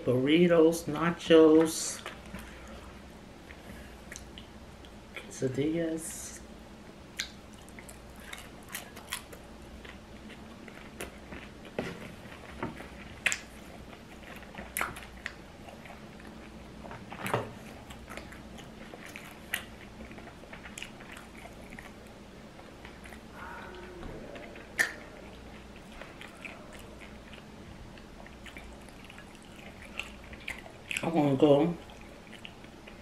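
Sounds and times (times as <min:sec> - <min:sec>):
chewing crunchy chips: 0:07.2 - 0:23.3, 0:24.3 - 0:33.0.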